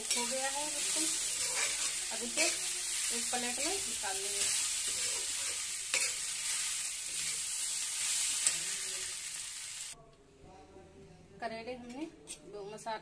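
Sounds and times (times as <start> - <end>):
steel spatula scraping a pan: 0.0 - 9.1
onions sizzling in oil: 0.0 - 10.0.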